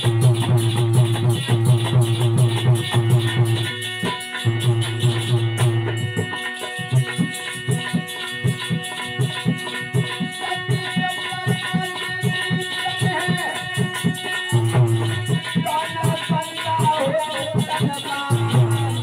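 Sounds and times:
hand drum beat: 0.0 - 19.0
harmonium notes: 0.0 - 19.0.

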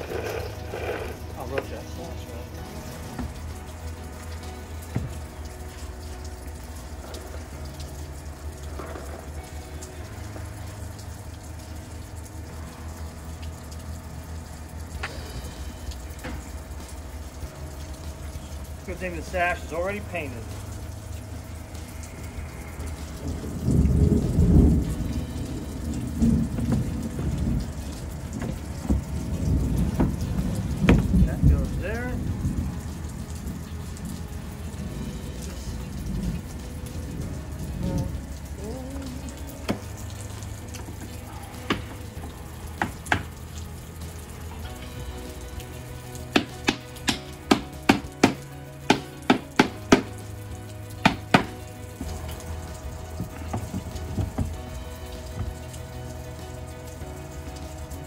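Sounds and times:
low rumbling noise: 0.0 - 58.0
hammer tapping on wooden frame: 46.4 - 50.2, 51.0 - 51.6.

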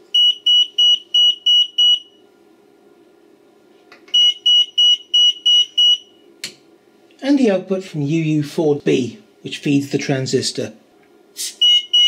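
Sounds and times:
alarm sounder short high beeps: 0.2 - 2.2, 11.6 - 12.0.

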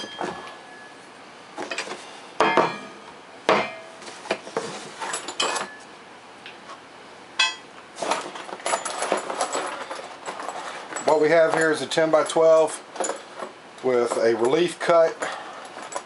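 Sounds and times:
sharp metallic clanks: 2.4 - 4.0, 7.4 - 7.7
paper and cardboard rustling: 4.0 - 5.2.

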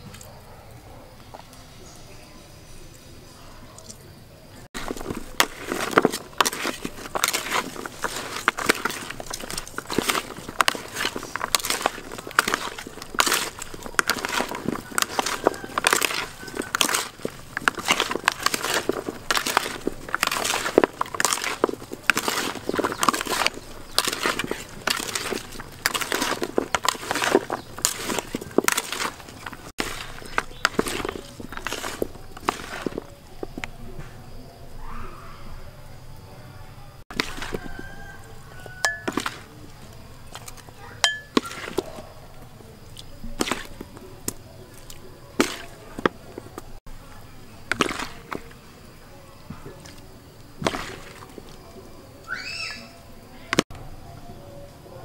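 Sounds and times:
hand squishing raw meat in bowl: 4.8 - 33.8, 37.1 - 42.1, 42.8 - 46.8, 47.6 - 48.6, 49.6 - 52.8.

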